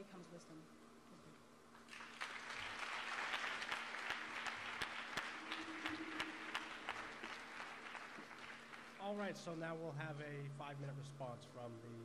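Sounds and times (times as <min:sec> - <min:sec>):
audience applauding: 0:01.9 - 0:09.2.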